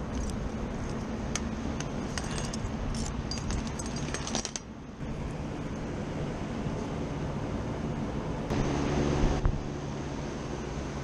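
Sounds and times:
steady low rumble: 0.0 - 11.0
metal tools jingling and clinking: 1.8 - 4.7.

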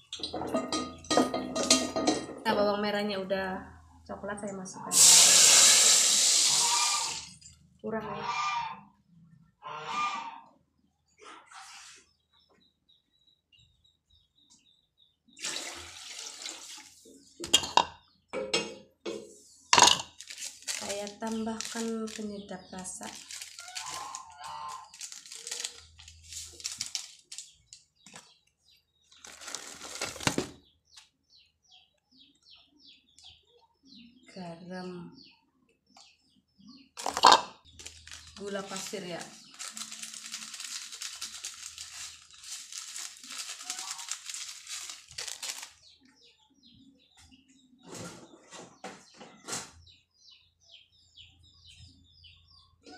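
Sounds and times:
plastic sachet crinkling: 19.8 - 27.8, 29.2 - 30.5, 37.0 - 45.8.

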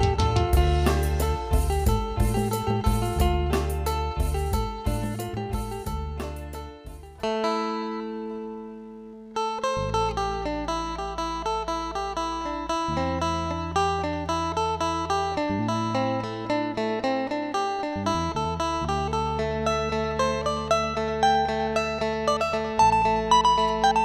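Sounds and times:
low bass line: 0.0 - 7.4
plucked string notes: 0.0 - 24.0.

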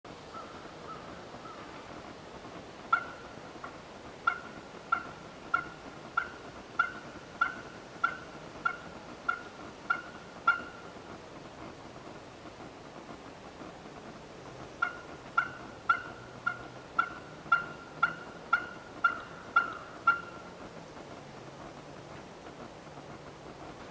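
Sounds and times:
turkey calling: 0.3 - 1.9, 2.9 - 10.9, 14.8 - 20.5.

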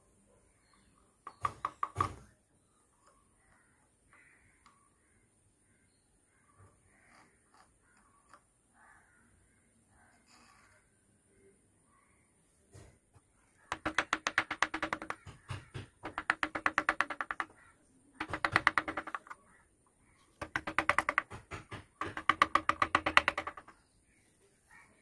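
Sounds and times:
mallet tapping chisel into wood: 13.7 - 17.5, 18.2 - 19.4, 20.4 - 23.7.

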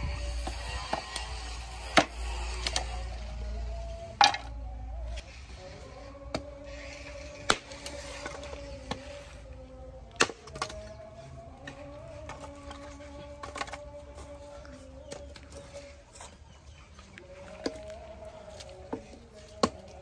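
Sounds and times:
axe chopping wood: 1.9 - 2.8, 4.2 - 4.5, 7.4 - 9.1, 10.1 - 11.0, 18.6 - 20.0.

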